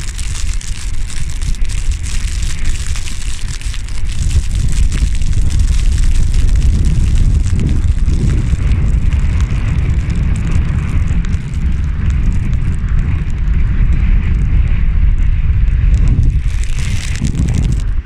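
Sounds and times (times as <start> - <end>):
sea and rain hiss: 0.0 - 13.3
wind buffeting microphone: 0.0 - 18.0.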